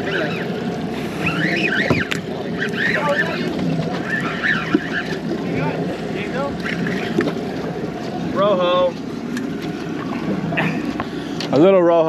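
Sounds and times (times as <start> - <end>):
wind on microphone: 0.0 - 8.3
fishing reel squeaking: 1.2 - 5.2.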